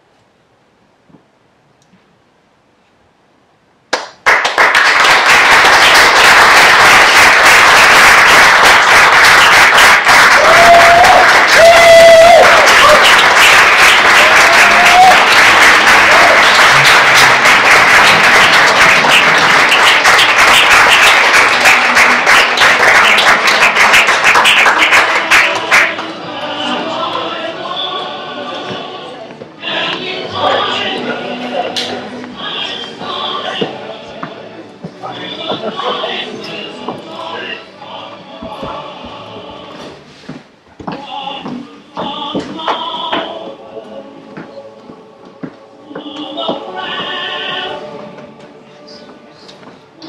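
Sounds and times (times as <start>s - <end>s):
audience applauding: 3.9s - 26.2s
cheers and whoops: 10.2s - 13.2s, 14.0s - 16.6s.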